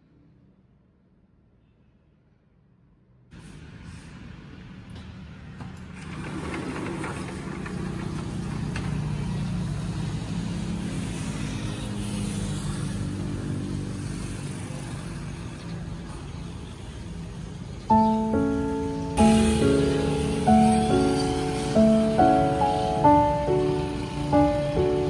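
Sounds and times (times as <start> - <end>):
vehicle engine humming: 4.7 - 15.8, 16.8 - 25.0.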